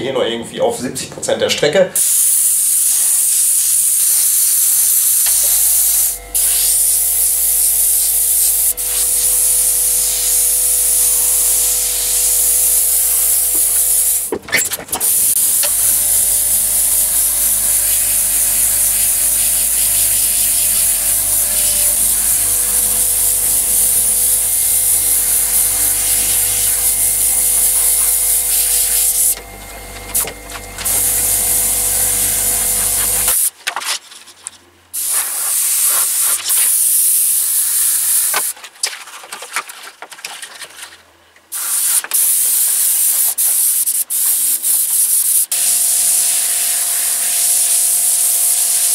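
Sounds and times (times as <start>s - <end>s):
airbrush hissing: 2.0s - 14.3s, 15.0s - 33.5s, 41.6s - 48.9s
low steady hum: 5.0s - 33.3s.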